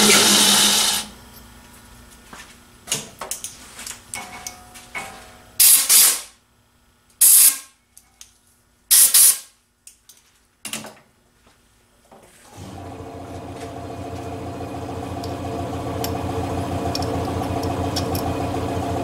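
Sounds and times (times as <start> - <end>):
compressed air blasts: 7.2 - 7.6.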